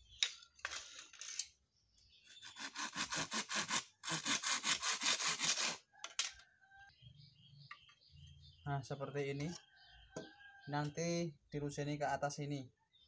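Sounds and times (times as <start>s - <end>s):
hand saw cutting wood: 2.4s - 5.8s.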